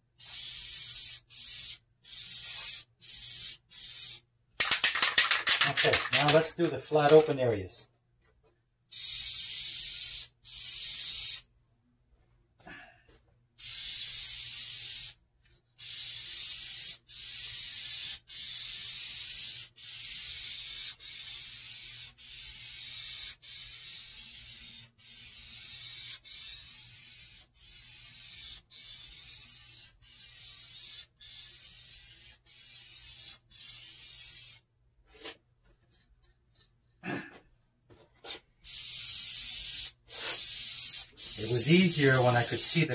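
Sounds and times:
aerosol can spraying: 0.2 - 6.4, 8.9 - 11.4, 13.6 - 15.2, 15.8 - 34.6, 38.6 - 42.9.

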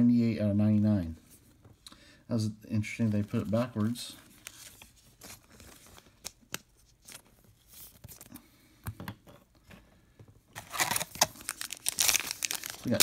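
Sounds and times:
wrapper crinkling and tearing: 10.6 - 13.0.

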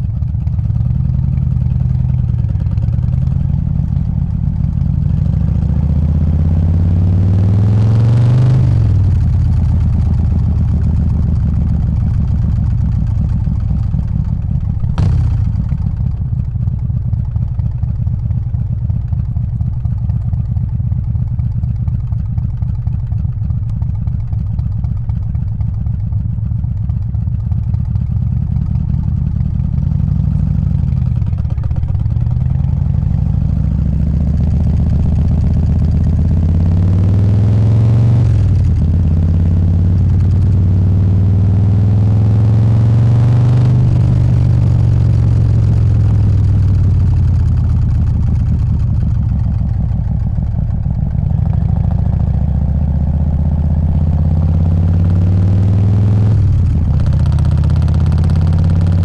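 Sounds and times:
motorcycle engine revving: 0.0 - 16.7, 27.8 - 59.0.

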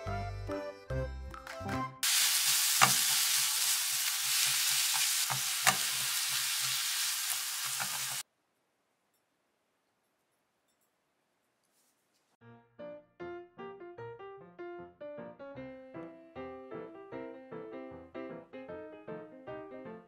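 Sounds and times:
noodles sizzling in a frying pan: 2.0 - 8.2.

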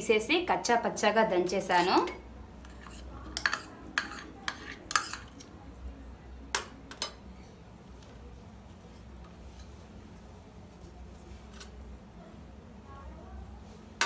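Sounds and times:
garlic scraped into bowl: 2.6 - 5.5.

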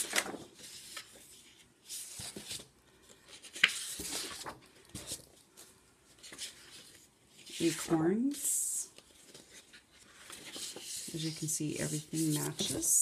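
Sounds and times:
paper sheets rustling: 0.0 - 13.0.

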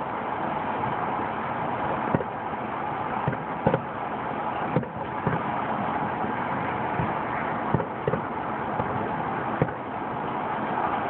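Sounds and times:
steady background hiss: 0.0 - 11.0
distant fireworks bangs: 2.0 - 2.4, 3.2 - 4.0, 4.7 - 5.6, 6.7 - 9.9.

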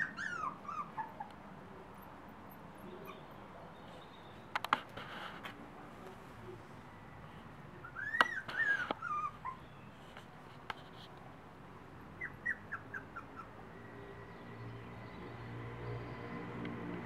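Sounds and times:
puppies whining: 0.0 - 1.4, 7.8 - 9.8, 12.2 - 13.6
puppies yelping: 0.0 - 1.4, 7.8 - 9.7, 12.2 - 13.6.

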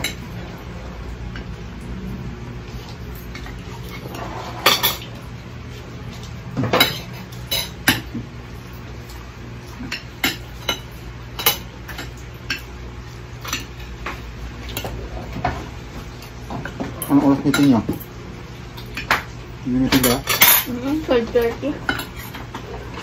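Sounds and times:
cutlery clinking on plates: 3.1 - 5.1, 6.6 - 8.2, 18.8 - 20.8, 21.5 - 23.0.

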